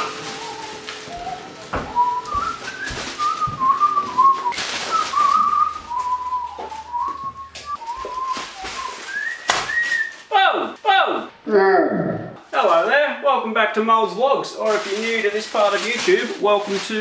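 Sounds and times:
person whistling a tune: 0.0s - 10.3s.

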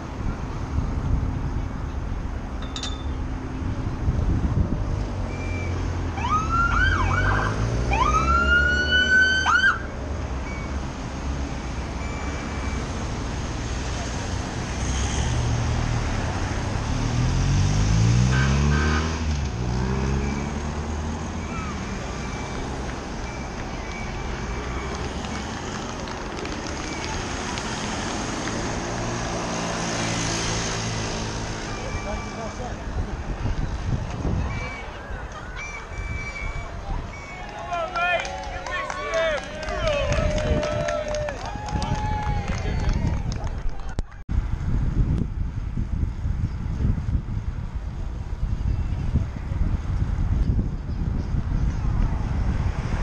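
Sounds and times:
engine hum: 0.0s - 53.0s
rumble of passing vehicles: 0.0s - 53.0s
vehicle siren whooping and wailing: 6.2s - 9.9s.

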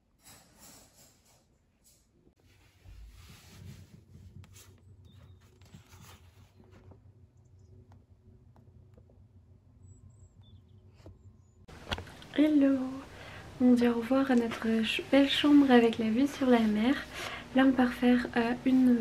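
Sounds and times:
book pages rustling: 2.6s - 7.1s, 11.0s - 12.3s.

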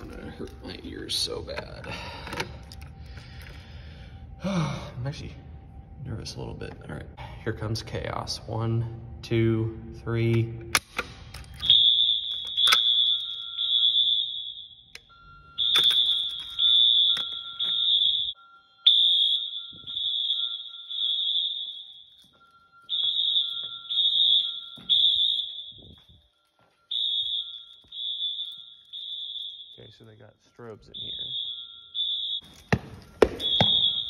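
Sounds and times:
fire alarm horn blasts: 11.6s - 34.0s.

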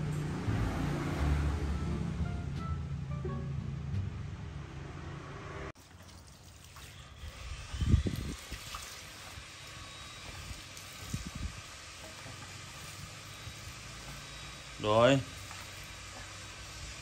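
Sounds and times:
music: 0.0s - 4.9s
water trickling: 5.8s - 7.3s.

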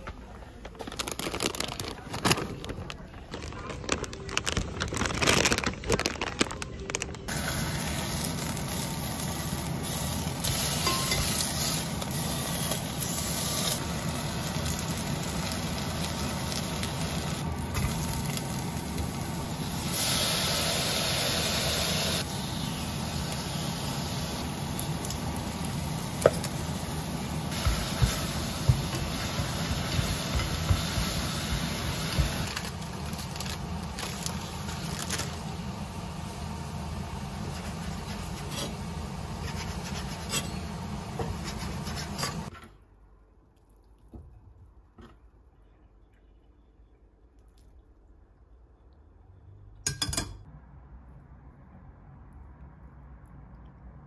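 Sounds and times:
plastic bags crinkling: 0.6s - 7.3s, 31.6s - 35.5s
meat and onions sizzling in a pot: 7.3s - 42.5s.

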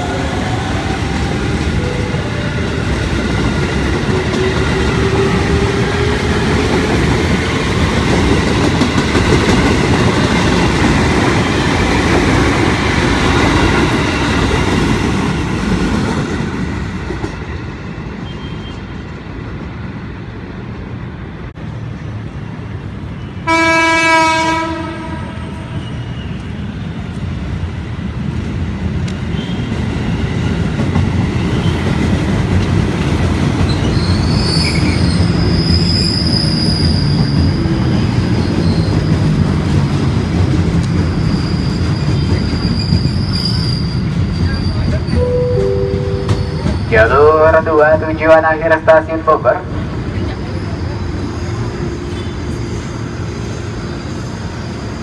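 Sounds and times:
train wheels rumbling and clacking: 0.0s - 20.9s, 24.6s - 47.4s
train horn blast: 23.4s - 26.0s.

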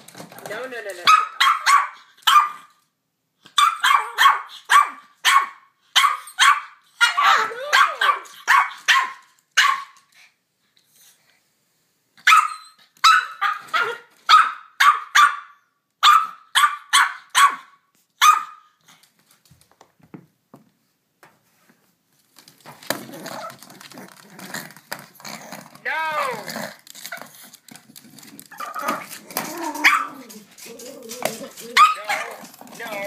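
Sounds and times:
small dog barking: 1.1s - 2.7s, 3.5s - 10.0s, 12.2s - 18.7s, 29.8s - 30.2s, 31.7s - 32.4s.

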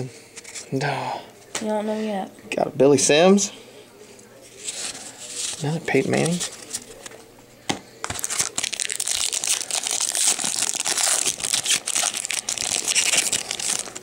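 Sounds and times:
foil wrapper crinkling and tearing: 8.0s - 14.0s.

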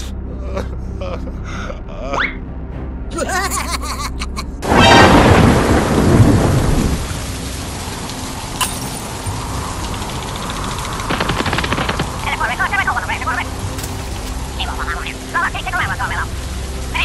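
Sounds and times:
thunder clap and rumble: 4.6s - 13.7s
heavy rain: 4.6s - 17.0s.

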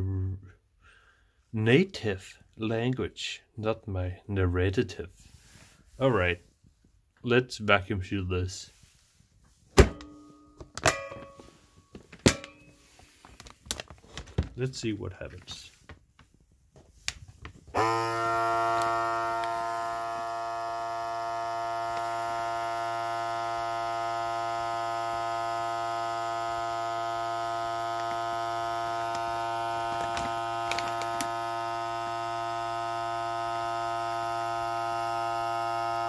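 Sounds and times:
vacuum pump motor humming: 17.7s - 36.0s.

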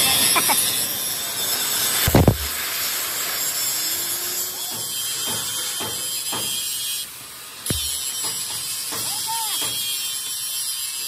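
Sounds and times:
steady hiss: 0.1s - 11.0s
metal knocks: 7.7s - 9.8s.

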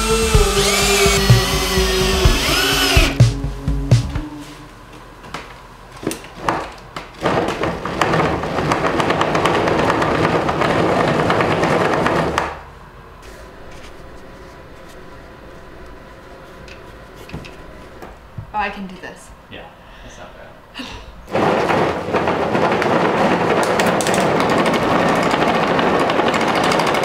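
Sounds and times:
background music: 0.0s - 4.6s
bike tyre rumbling on rollers: 7.1s - 12.5s, 21.3s - 27.0s.

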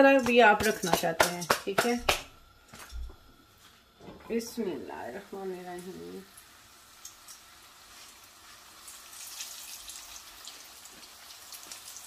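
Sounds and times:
flatbread sizzling in pan: 2.6s - 12.0s.

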